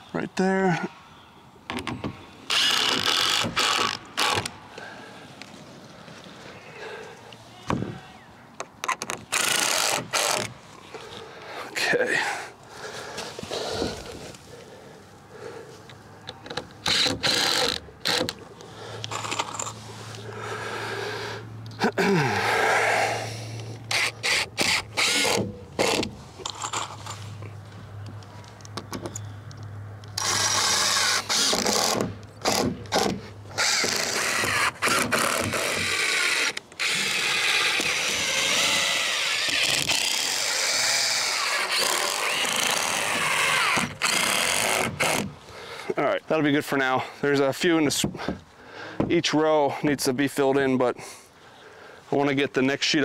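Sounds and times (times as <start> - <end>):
cordless drill driving screws: 2.5 - 4.5, 8.8 - 10.5, 16.5 - 18.4, 23.9 - 27.2, 30.2 - 45.3.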